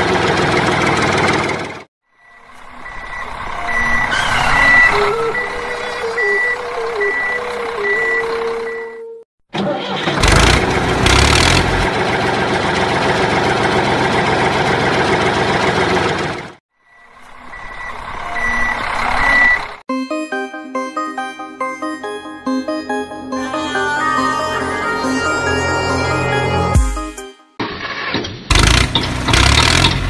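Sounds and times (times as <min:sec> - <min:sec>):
truck engine: 0:00.0 - 0:19.8, 0:27.6 - 0:30.0
reversing alarm beeping: 0:02.2 - 0:09.2, 0:16.8 - 0:19.8.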